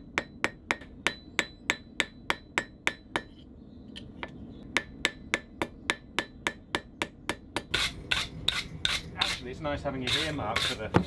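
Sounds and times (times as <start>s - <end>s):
hammer striking metal on anvil: 0.0s - 3.4s, 4.2s - 9.4s.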